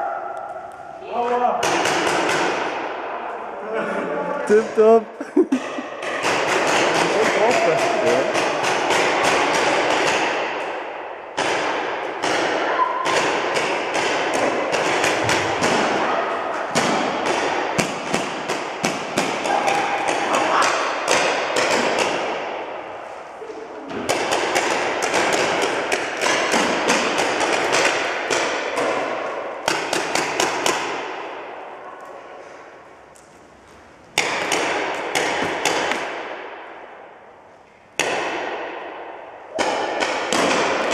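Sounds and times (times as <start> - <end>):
paintball markers firing: 6.0 - 10.7, 11.4 - 16.0, 24.1 - 31.4, 34.2 - 36.7, 39.6 - 40.9.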